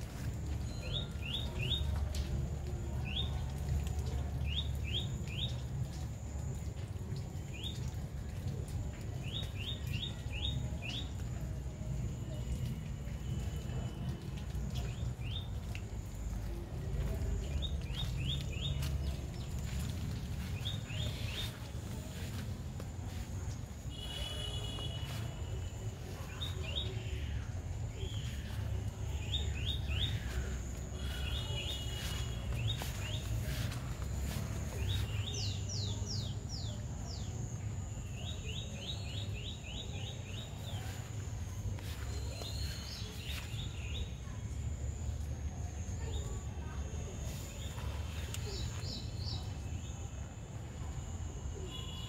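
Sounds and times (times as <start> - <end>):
small birds chirping: 14.4 - 37.3, 38.0 - 44.4.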